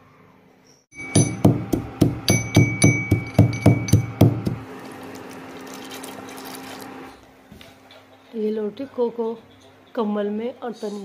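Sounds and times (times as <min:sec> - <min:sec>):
pestle pounding in steel bowl: 0:01.0 - 0:04.7.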